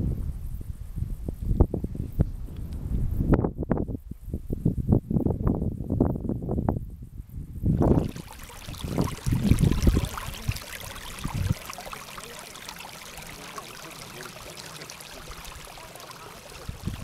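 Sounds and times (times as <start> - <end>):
wind buffeting microphone: 0.0 - 17.0
stream trickling: 7.8 - 17.0.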